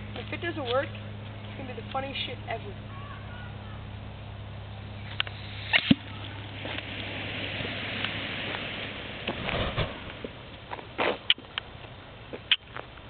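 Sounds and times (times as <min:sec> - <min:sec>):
smoke bomb hissing: 0:05.3 - 0:10.4
burst of noise: 0:05.3 - 0:10.5.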